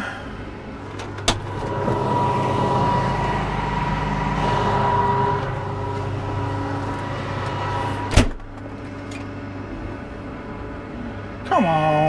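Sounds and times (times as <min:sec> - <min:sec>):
combine engine running: 0:00.8 - 0:10.6
thin high tone: 0:01.4 - 0:08.2.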